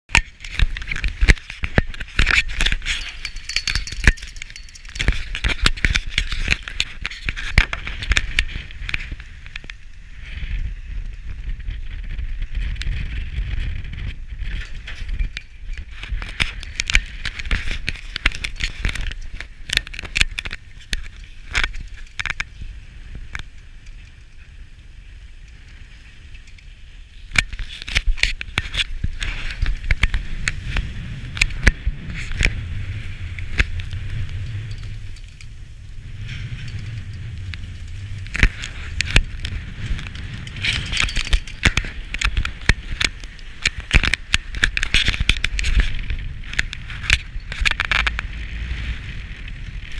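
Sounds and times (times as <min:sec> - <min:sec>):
skis scraping over snow: 0:15.9 - 0:49.9.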